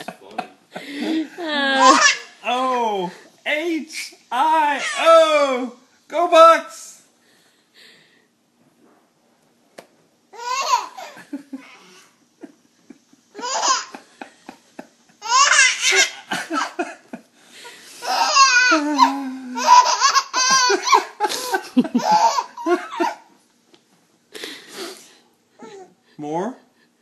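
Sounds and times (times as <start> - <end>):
baby laughing: 1.8 - 2.8, 4.7 - 5.1, 10.4 - 12.1, 13.3 - 14.2, 15.2 - 16.9, 18.0 - 23.3.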